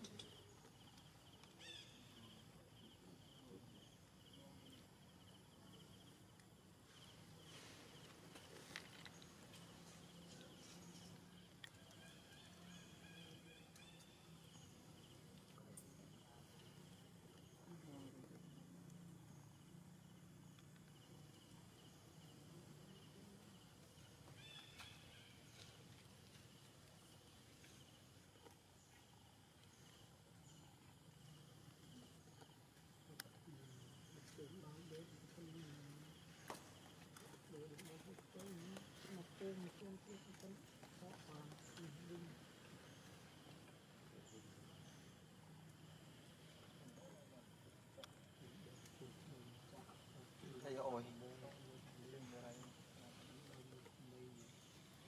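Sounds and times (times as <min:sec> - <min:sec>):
insect chirping: 0:00.0 - 0:55.0.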